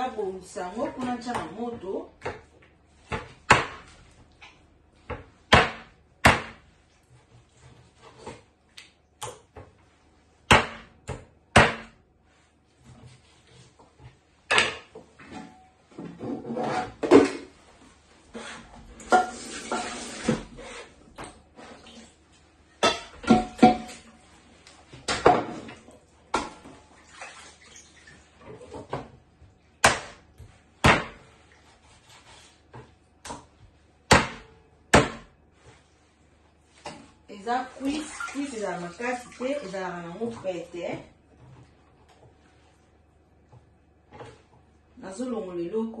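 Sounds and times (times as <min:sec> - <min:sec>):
knife chopping on wooden board: 0:05.1 - 0:06.6, 0:10.5 - 0:12.0, 0:29.8 - 0:30.2, 0:30.8 - 0:31.2, 0:34.1 - 0:35.3.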